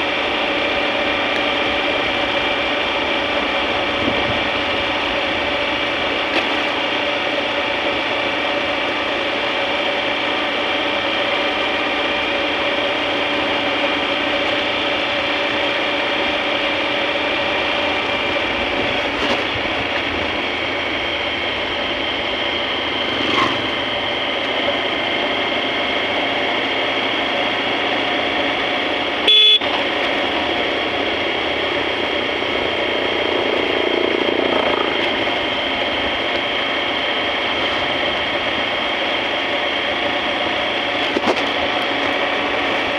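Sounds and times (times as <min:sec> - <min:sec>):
motorcycle engine running: 0:00.0 - 0:42.9
motorcycle horn beep: 0:29.2 - 0:29.8.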